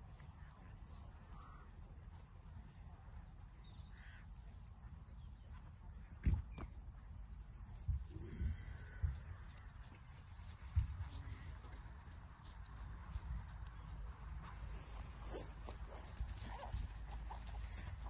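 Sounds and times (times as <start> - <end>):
wind rumbling on microphone: 5.0 - 18.0.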